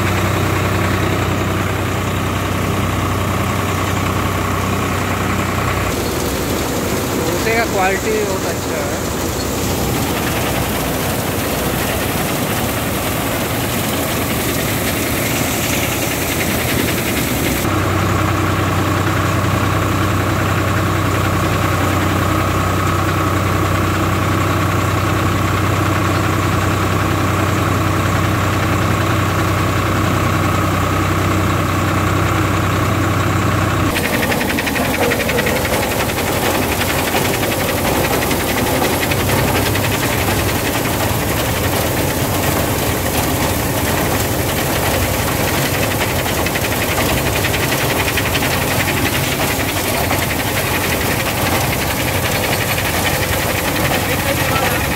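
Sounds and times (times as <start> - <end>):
tractor diesel engine whining: 0.0 - 54.9
thresher mechanical din: 5.9 - 17.7, 33.9 - 54.9.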